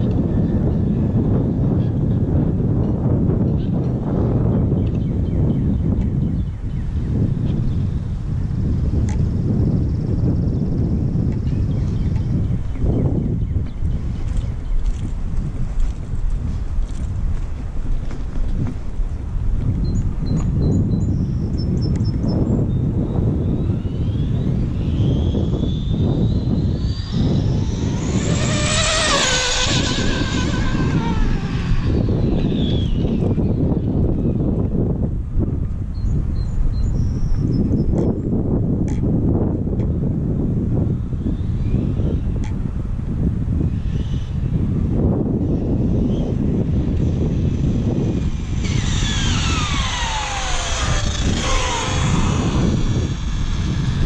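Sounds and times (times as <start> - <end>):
wind rumble on microphone: 0.0 - 54.0
rc car motor whining: 23.6 - 34.4, 45.4 - 54.0.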